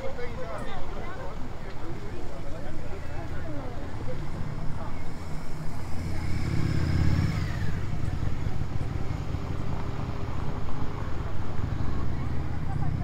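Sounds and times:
vehicle engine rumble passing: 0:03.3 - 0:13.0.

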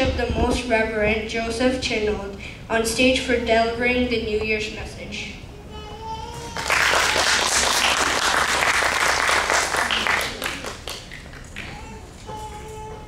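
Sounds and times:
audience applause: 0:06.6 - 0:11.8.

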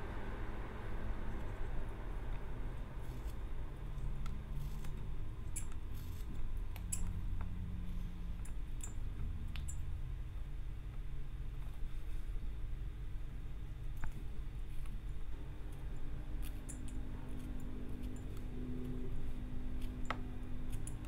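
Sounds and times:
low steady rumble: 0:00.0 - 0:21.0
sharp clicks and snaps: 0:08.4 - 0:09.9.

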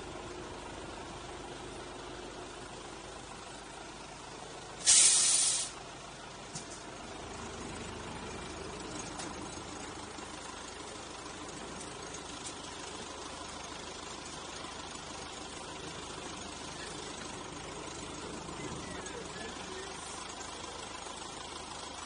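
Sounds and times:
train engine rumbling: 0:00.0 - 0:22.0
train hiss: 0:04.8 - 0:05.8
faint wheel ticks: 0:06.4 - 0:22.0.

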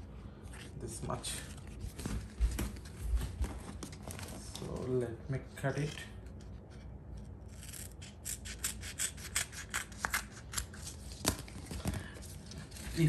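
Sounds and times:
scissors snipping tape: 0:07.4 - 0:11.5.

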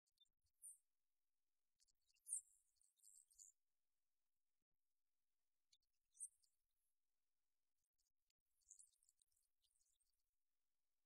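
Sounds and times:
faint high-pitched tick: 0:01.8 - 0:03.6.

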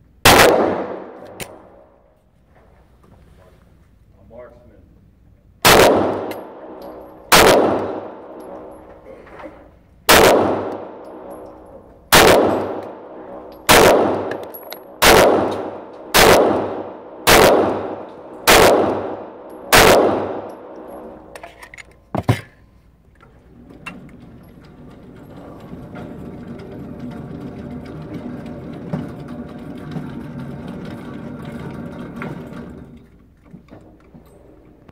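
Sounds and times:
pistol shots echoing indoors: 0:00.2 - 0:01.9, 0:05.6 - 0:08.8, 0:10.1 - 0:21.3.

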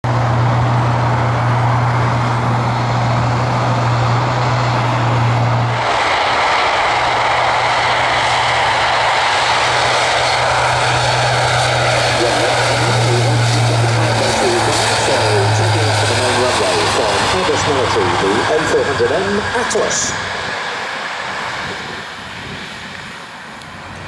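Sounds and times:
engine rush: 0:00.0 - 0:24.0
propeller drone: 0:00.0 - 0:24.0.

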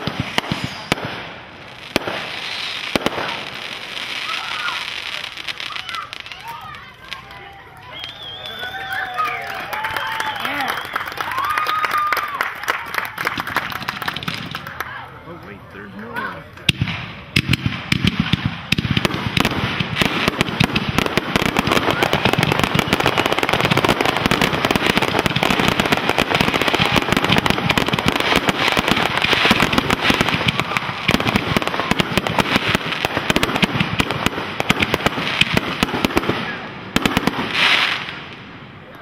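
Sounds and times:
fireworks pops and bangs: 0:00.0 - 0:15.6, 0:16.5 - 0:39.0
fireworks crackling: 0:00.0 - 0:39.0.

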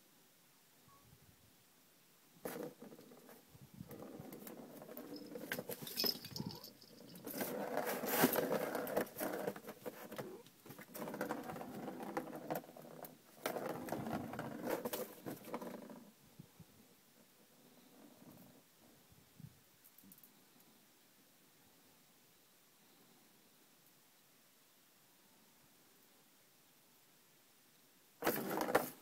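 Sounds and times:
ball rattling around plastic track: 0:03.9 - 0:15.9, 0:28.2 - 0:29.0.

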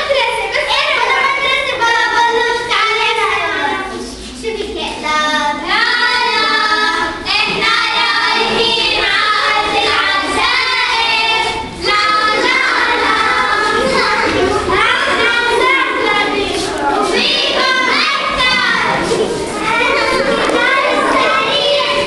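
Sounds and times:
children singing: 0:00.0 - 0:22.0.

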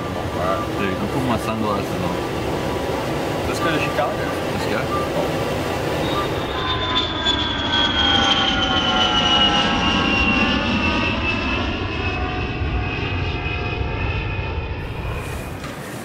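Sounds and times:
jet engines running: 0:00.0 - 0:16.0.

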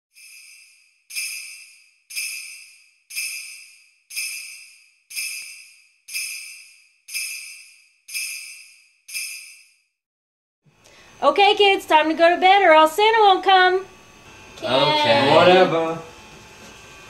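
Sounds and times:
sleigh bells jingling: 0:00.1 - 0:09.9.

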